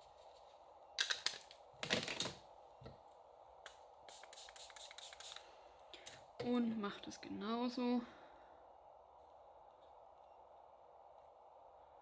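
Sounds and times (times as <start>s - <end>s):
spray bottle spritzes: 4.1s - 5.4s.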